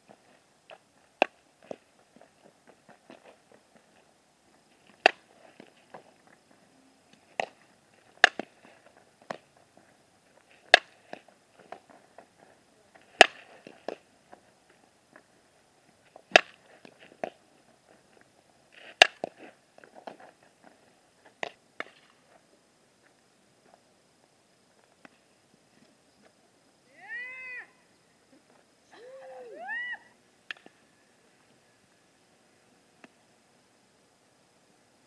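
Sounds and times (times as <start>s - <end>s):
softball smacking leather glove: 4.9s - 5.7s, 8.2s - 8.5s, 10.7s - 11.2s, 13.2s - 14.0s.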